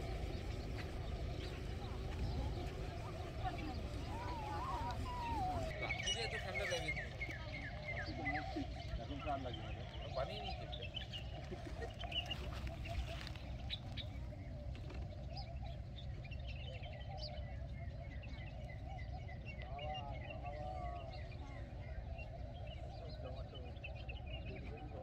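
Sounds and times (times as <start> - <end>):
low rumble: 0.0 - 5.8
small birds chirping: 0.0 - 25.0.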